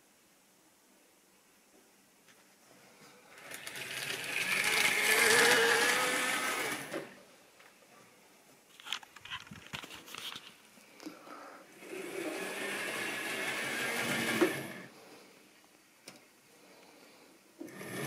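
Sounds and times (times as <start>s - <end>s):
electric motor whining: 3.5s - 7.2s, 11.8s - 14.9s.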